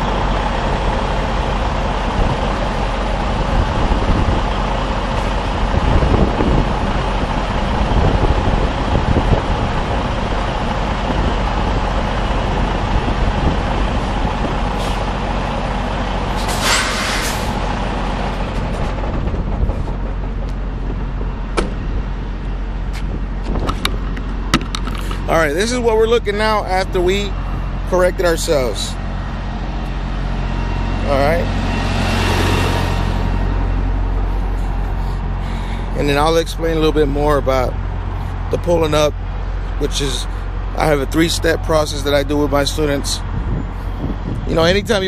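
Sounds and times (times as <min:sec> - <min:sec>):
truck diesel engine running: 0:00.0 - 0:45.0
air brakes hissing: 0:14.7 - 0:15.1, 0:16.3 - 0:17.6.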